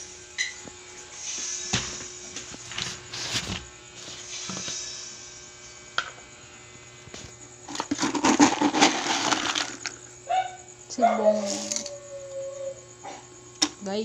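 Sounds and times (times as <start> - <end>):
kibble rattling into metal bowl: 7.7 - 10.0.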